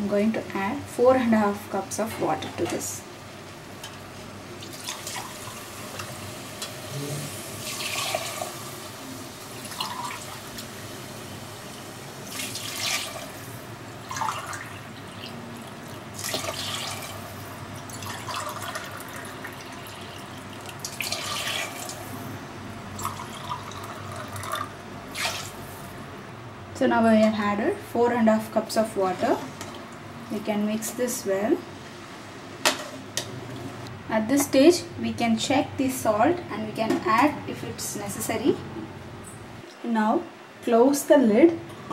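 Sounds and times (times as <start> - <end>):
water pouring and splashing: 7.6 - 8.6, 12.2 - 13.3, 14.0 - 17.2.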